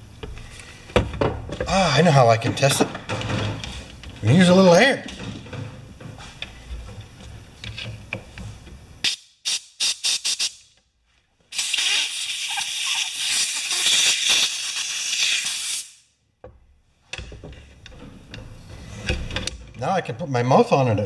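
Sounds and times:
air hissing: 9.0 - 10.7, 11.5 - 16.1.

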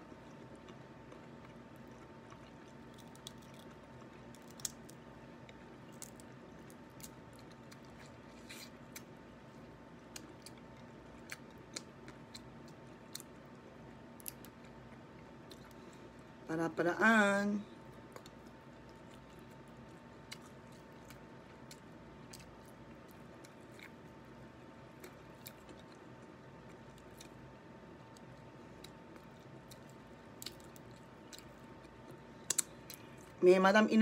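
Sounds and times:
quiet chewing: 0.0 - 9.1, 10.1 - 16.2, 17.9 - 33.4
steady low hum: 0.0 - 34.0
crab shell cracking: 2.8 - 5.0.

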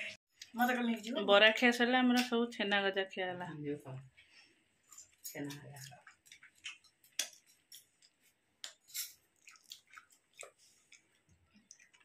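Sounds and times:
person chewing crunchy snack: 5.8 - 12.0.

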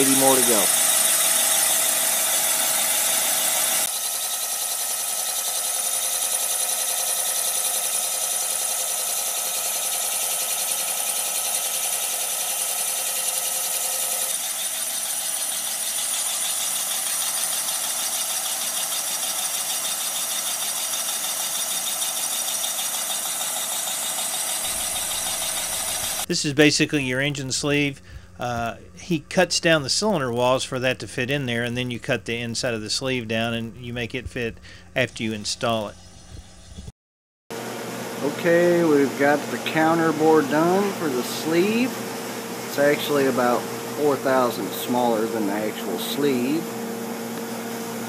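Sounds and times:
boring machine whirring: 0.0 - 26.3, 37.6 - 48.0.

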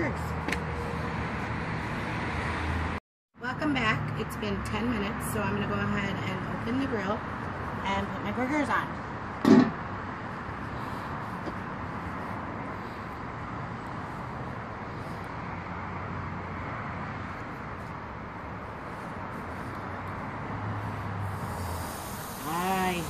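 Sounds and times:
background hiss: 21.2 - 23.0
burger sizzling on grill: 21.4 - 23.0.

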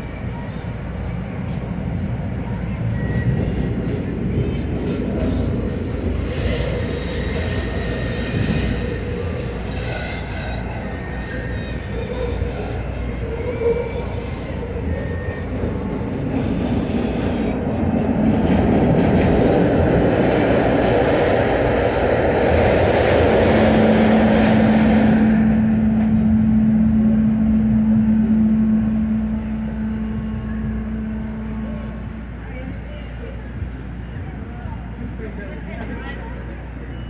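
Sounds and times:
trolley wheels rumbling on track: 0.0 - 37.0
steady hum: 22.6 - 34.4.

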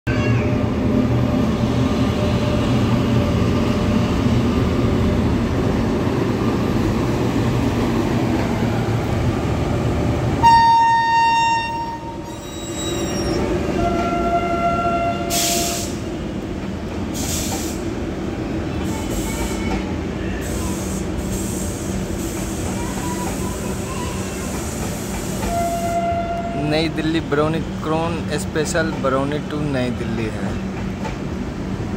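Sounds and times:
train rumbling past: 0.1 - 31.9
train horn: 10.4 - 12.2, 13.8 - 16.0, 25.5 - 26.6.

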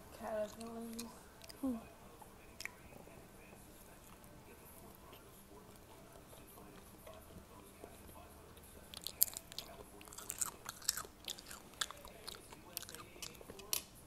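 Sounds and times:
person chewing crunchy food: 7.9 - 13.7.

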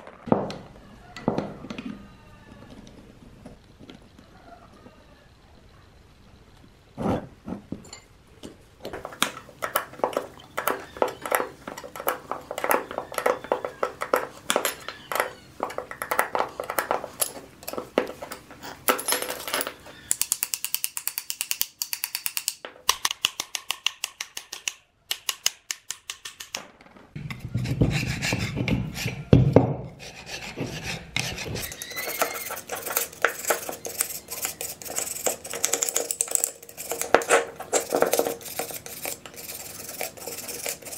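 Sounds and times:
metal tools clinking: 7.8 - 8.1, 17.1 - 20.5, 31.7 - 38.4.

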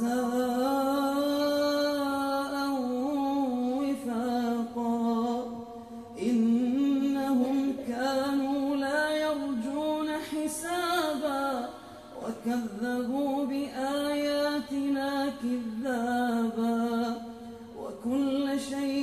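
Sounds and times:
man chanting melodically: 0.0 - 19.0
man breathing: 5.7 - 6.2.

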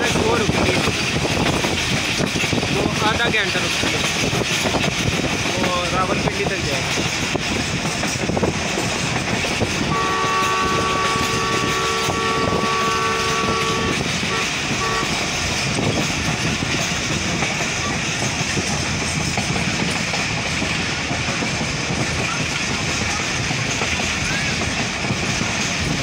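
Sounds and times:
train wheels on rail: 0.0 - 26.0
locomotive horn blasts: 9.9 - 15.3.

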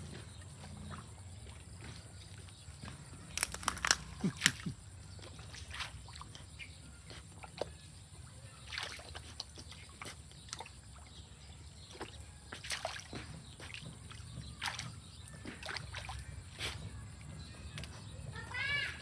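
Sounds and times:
dog splashing in water: 0.0 - 19.0.

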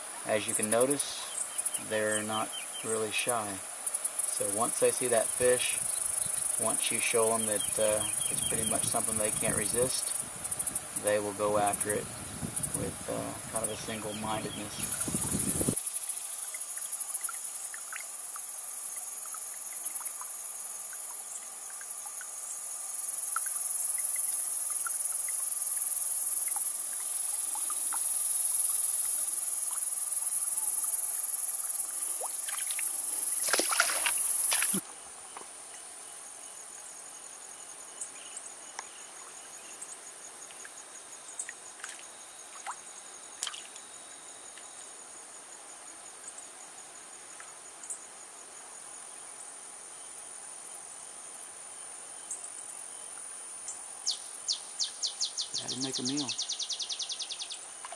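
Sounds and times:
insects singing in shrill chorus: 0.0 - 45.3, 51.7 - 57.9
cricket chirping: 0.0 - 57.9
faint ticks: 16.0 - 22.4, 23.0 - 31.0, 38.7 - 39.0, 47.3 - 48.0
short splashes or knocks: 32.2 - 34.8.

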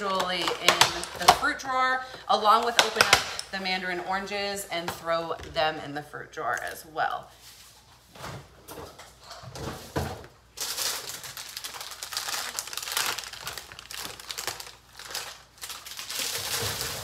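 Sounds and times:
plastic bag crinkling: 0.0 - 3.6, 10.6 - 17.0.

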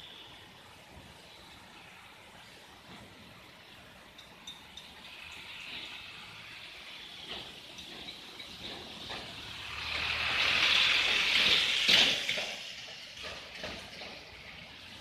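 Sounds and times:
tyre hiss on wet road: 0.0 - 15.0.

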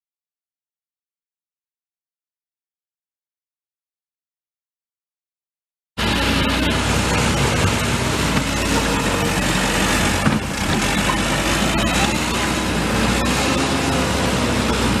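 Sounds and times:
diesel engine running: 6.0 - 15.0.

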